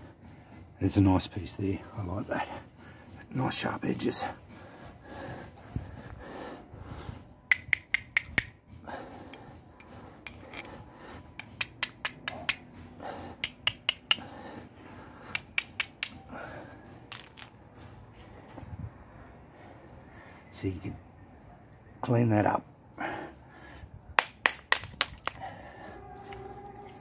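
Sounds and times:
fire striker scraping on stone: 9.3s - 12.6s.

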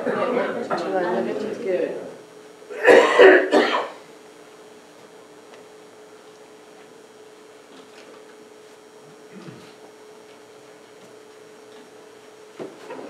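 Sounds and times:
faint steady hum: 0.0s - 13.0s
person coughing: 2.7s - 4.0s.

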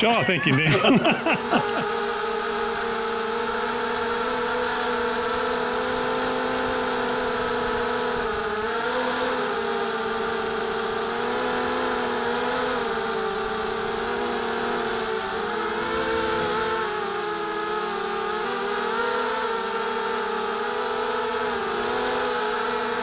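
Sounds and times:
drone motors whining: 0.0s - 23.0s.

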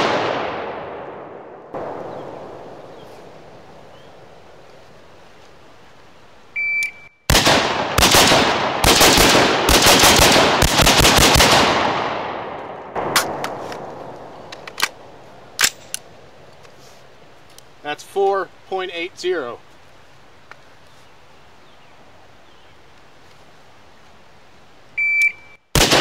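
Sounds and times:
rifle gunshots echoing: 0.0s - 4.0s, 7.3s - 15.9s, 25.8s - 26.0s
shot timer beep: 6.6s - 7.2s, 25.0s - 25.6s
sharp clicks: 14.5s - 15.0s, 15.6s - 16.7s.

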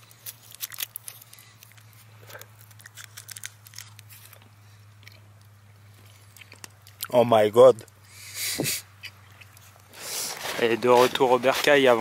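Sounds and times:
plastic wrapper crinkling: 0.0s - 4.5s, 10.2s - 12.0s.

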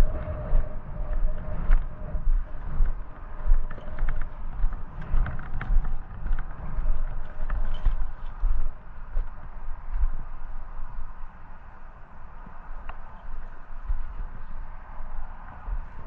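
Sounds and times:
low rumble: 0.0s - 11.4s.

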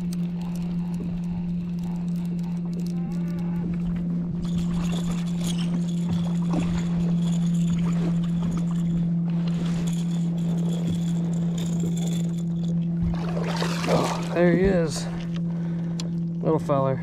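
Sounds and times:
steady low hum: 0.0s - 17.0s
fish splashing in water: 13.0s - 14.4s.

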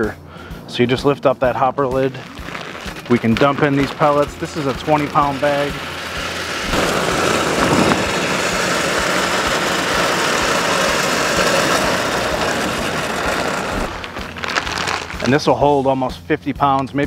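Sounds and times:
wood pellets pouring into hopper: 1.7s - 16.1s.

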